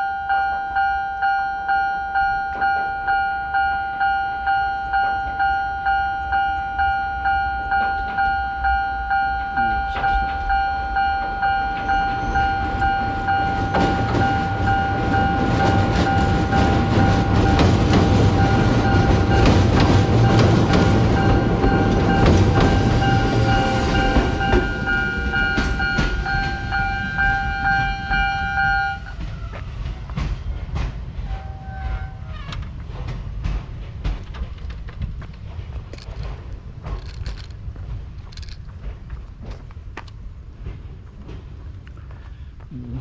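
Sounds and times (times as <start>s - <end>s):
level-crossing warning bell: 0.0s - 30.3s
train wheels clacking over rail joints: 7.7s - 42.5s.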